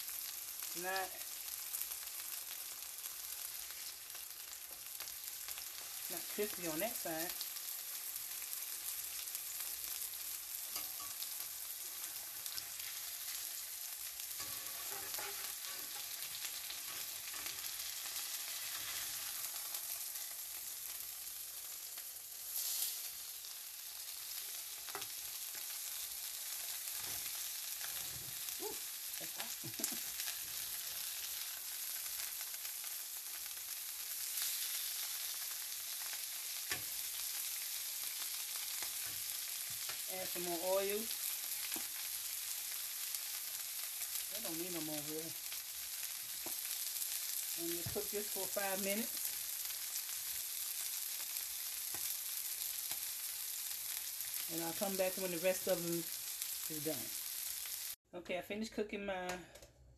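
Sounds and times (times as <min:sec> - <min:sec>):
chicken sizzling in oil: 0:00.0 - 0:58.0
metal spatula clicks and scrapes: 0:14.4 - 0:16.1.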